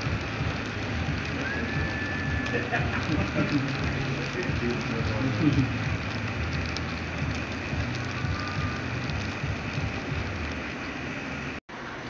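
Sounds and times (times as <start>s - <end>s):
locomotive motor hum: 0.0s - 11.6s.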